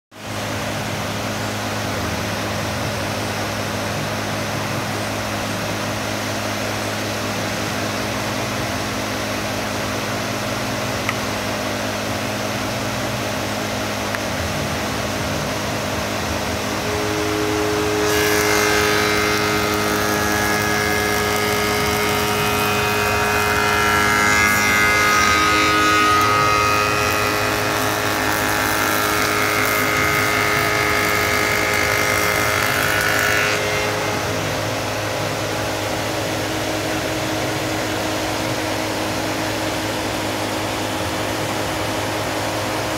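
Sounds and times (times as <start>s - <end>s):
spindle moulder humming: 12.7s - 42.9s
cutter cutting wood: 15.5s - 38.5s.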